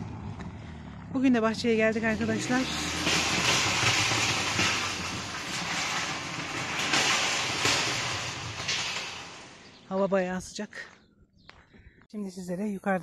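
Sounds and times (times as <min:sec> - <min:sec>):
car engine: 0:00.0 - 0:09.9
tyres crunching on gravel: 0:00.0 - 0:11.7.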